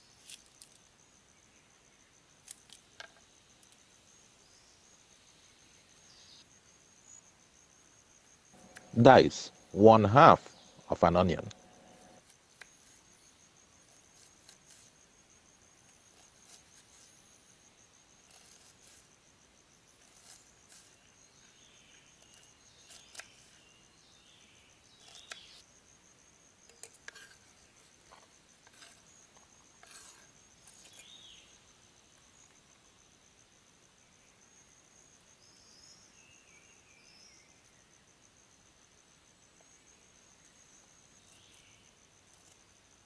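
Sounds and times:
insect trilling: 6.0s - 25.9s, 26.5s - 32.6s.

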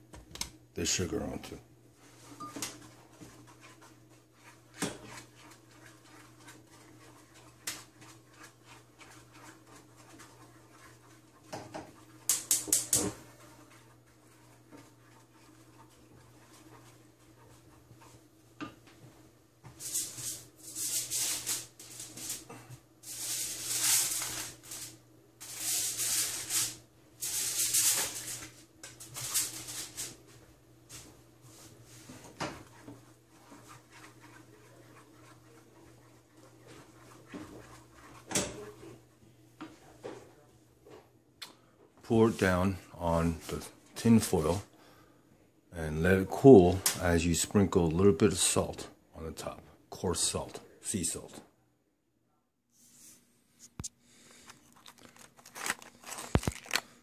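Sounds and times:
wooden spatula scraping a pan: 2.0s - 40.3s.

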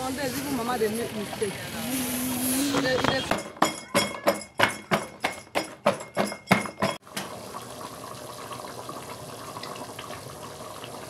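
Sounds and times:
stew simmering hiss: 7.0s - 11.0s.

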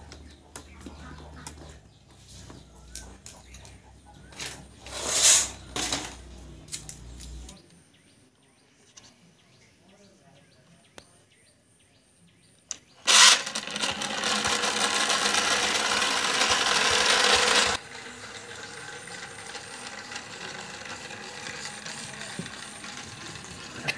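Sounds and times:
small electric motor whirring: 13.0s - 23.9s.

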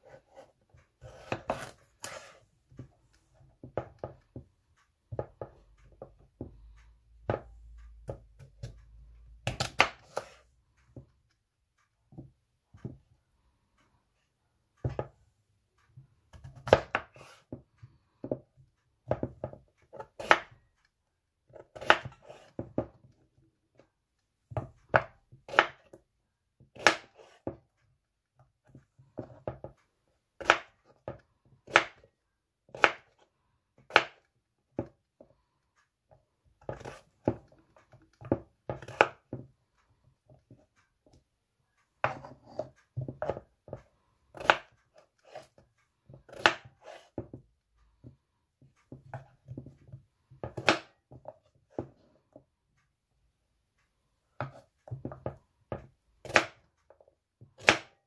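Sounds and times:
knife cutting potatoes on wood: 0.0s - 4.5s, 5.1s - 11.1s, 16.0s - 20.8s, 21.4s - 23.8s, 24.5s - 26.0s, 26.6s - 27.6s, 28.4s - 35.3s, 36.4s - 39.5s, 42.0s - 47.4s, 48.0s - 52.4s, 54.3s - 58.0s.

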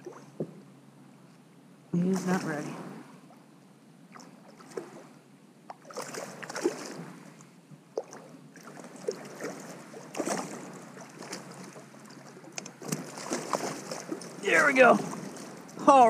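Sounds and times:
fish splashing in water: 5.7s - 7.2s, 8.0s - 15.8s.

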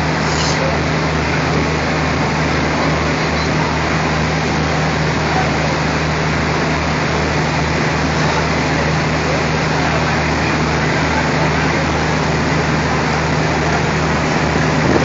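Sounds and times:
diesel locomotive engine drone: 0.0s - 15.0s.

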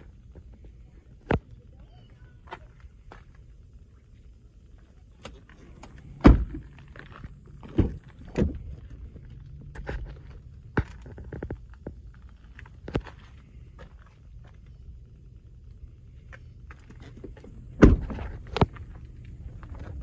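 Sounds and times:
car door shutting thunk: 6.2s - 6.7s, 17.8s - 18.3s.

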